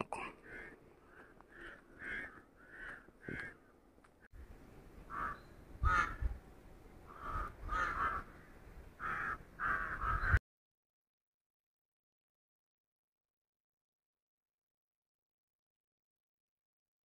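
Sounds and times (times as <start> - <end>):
crows cawing: 0.2 - 3.8, 5.1 - 6.3, 7.0 - 10.4.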